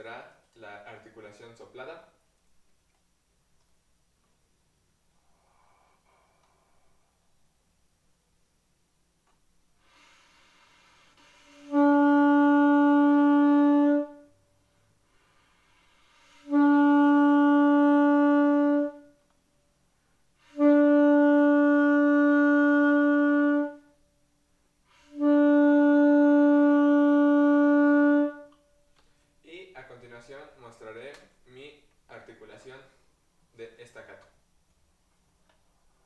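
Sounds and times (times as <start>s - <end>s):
saxophone long notes: 9.9s - 14.4s, 15.1s - 19.3s, 20.4s - 24.0s, 24.9s - 28.7s.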